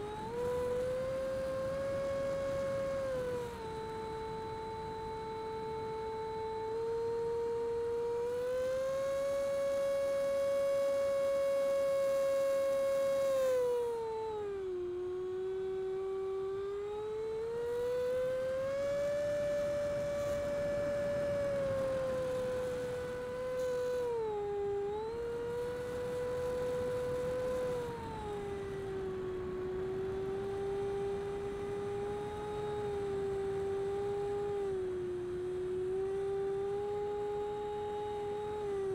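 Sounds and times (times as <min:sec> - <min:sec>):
electric ducted fan whining: 0:00.0 - 0:38.9
faint hiss of airflow: 0:00.0 - 0:38.9.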